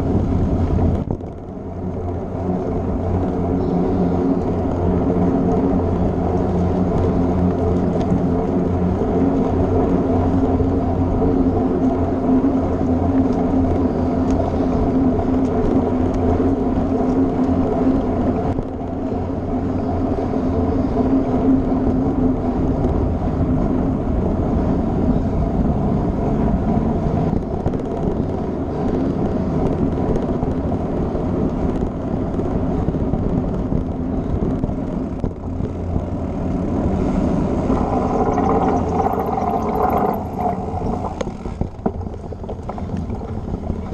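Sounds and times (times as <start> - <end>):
bike tyres rumbling over planks: 41.2 - 43.9.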